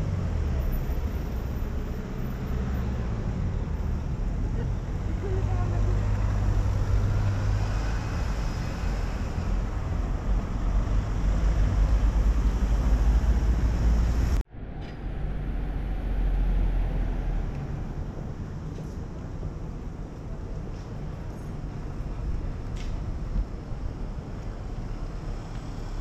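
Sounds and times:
steady low rumble: 8.3s - 25.6s.

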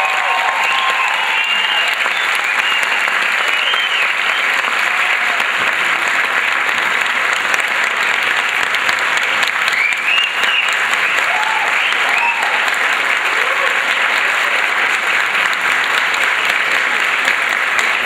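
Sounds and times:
high calls from audience: 0.0s - 5.6s, 9.7s - 14.8s
audience applauding: 0.0s - 18.0s.

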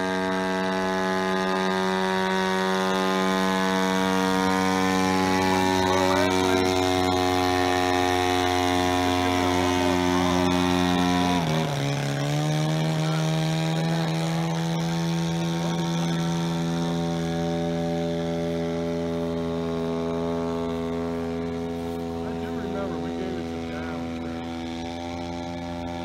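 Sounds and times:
propeller aircraft engine running: 0.0s - 26.0s.

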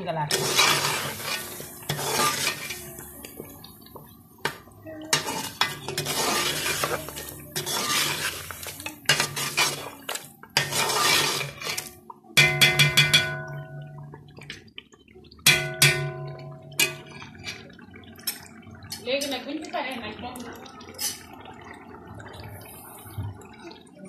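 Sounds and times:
spatula scraping sauce in pot: 0.3s - 3.5s, 4.4s - 12.0s
taps on ringing pot: 12.4s - 14.1s, 15.5s - 17.0s.

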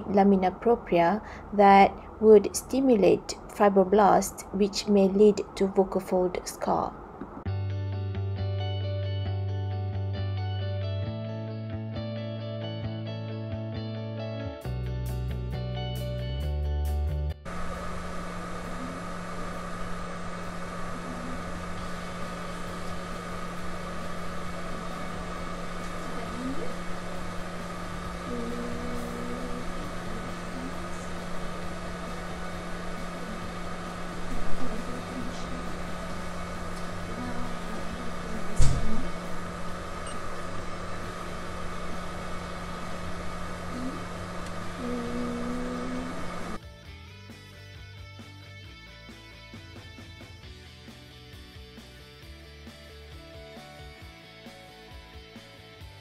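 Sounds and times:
medical equipment hum and hiss: 0.0s - 7.5s, 17.5s - 46.6s.

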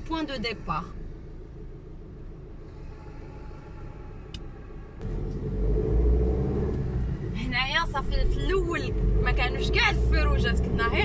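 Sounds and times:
car engine heard from cabin: 0.0s - 11.0s.

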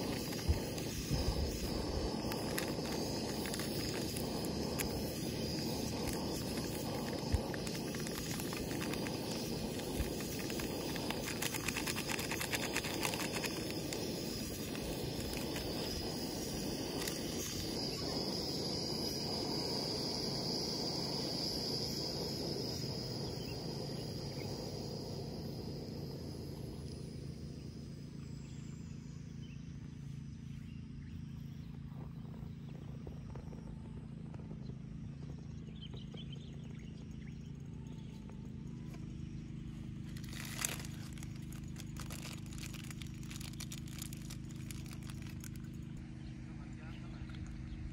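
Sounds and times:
gas camping stove hissing: 0.0s - 28.4s, 39.9s - 46.0s.

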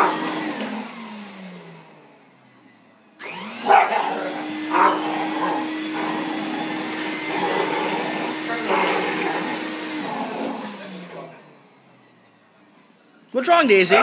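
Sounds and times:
vacuum cleaner motor: 0.0s - 13.0s
dog barking: 3.6s - 6.4s.

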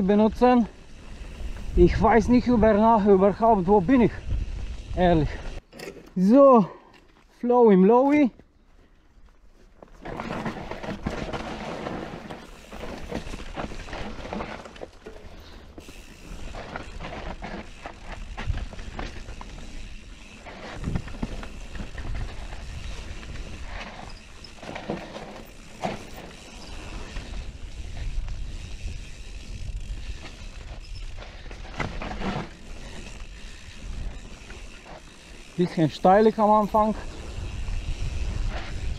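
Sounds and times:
bike tyres on dirt trail: 0.0s - 38.9s
bike knocking and rattling: 9.6s - 38.9s.

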